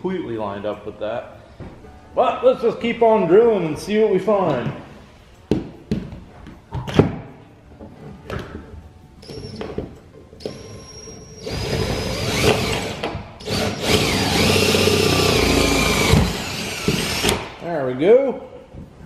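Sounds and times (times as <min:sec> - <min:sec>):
cordless drill boring into metal: 0:11.4 - 0:17.4.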